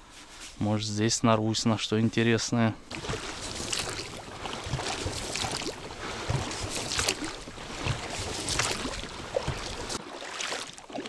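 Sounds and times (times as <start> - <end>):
oars splashing through water: 2.8 - 11.0
steady wash of water: 2.9 - 11.0.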